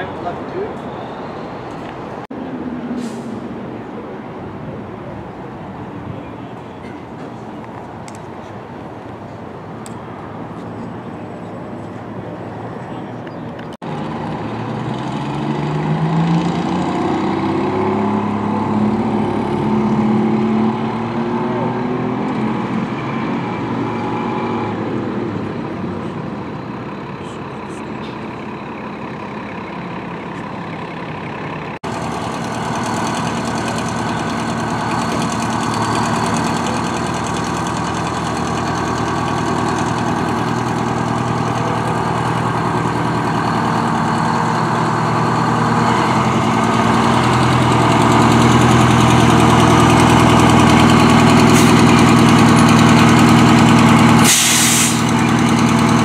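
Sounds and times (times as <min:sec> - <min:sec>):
fire truck engines idling: 0:03.0 - 0:13.7, 0:25.0 - 0:56.0.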